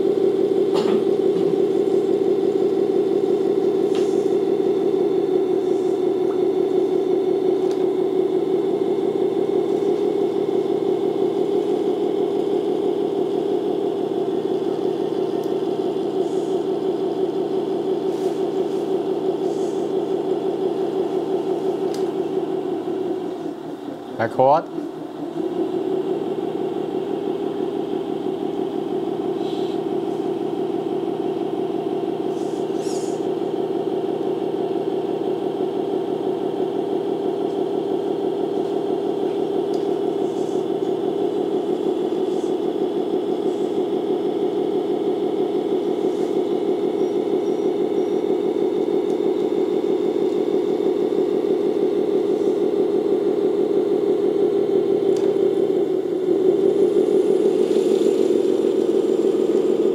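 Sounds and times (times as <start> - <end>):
electric motor whine: 24.8 - 59.9.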